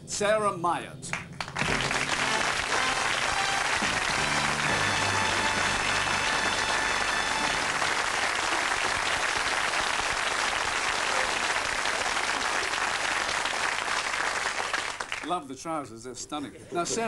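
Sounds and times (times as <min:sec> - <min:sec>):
audience applauding: 0:01.1 - 0:15.4
music: 0:01.6 - 0:09.1.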